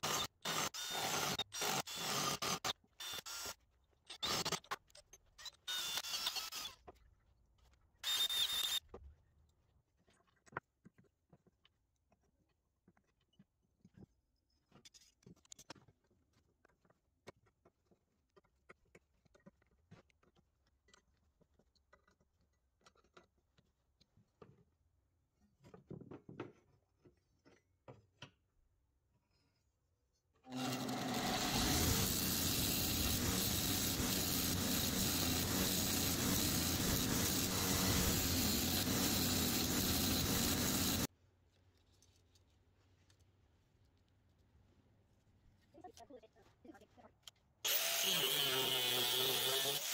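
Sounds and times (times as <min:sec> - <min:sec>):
belt grinder running: 0:30.5 - 0:41.1, 0:47.7 - 0:49.9.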